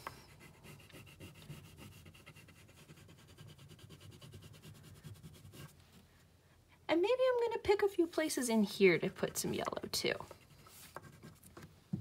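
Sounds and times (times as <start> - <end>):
crayon rubbing on paper: 0.3 - 5.8.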